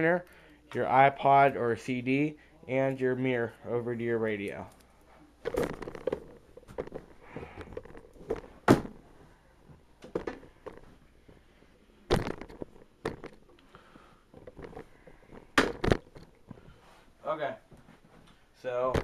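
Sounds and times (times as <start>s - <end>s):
knocks and thumps from handling: 5.4s - 11.4s, 12.1s - 13.5s, 14.3s - 16.8s.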